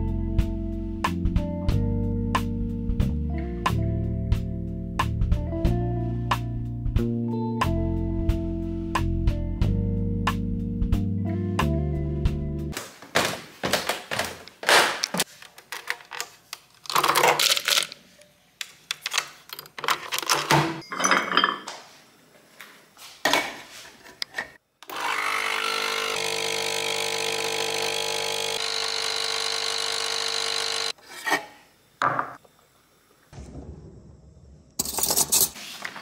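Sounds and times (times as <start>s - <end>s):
coffee machine pump buzzing: 24.8s - 31.0s.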